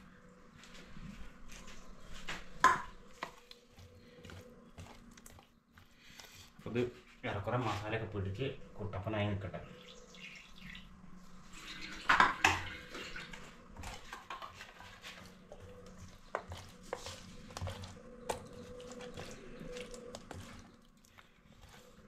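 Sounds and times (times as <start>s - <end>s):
hand mixing food in wet masala: 1.4s - 8.0s, 12.7s - 22.0s.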